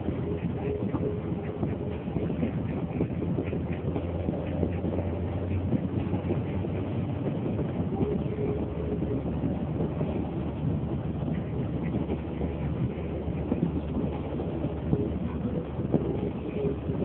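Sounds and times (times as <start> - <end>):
car engine and tyres rumbling: 0.0 - 17.0.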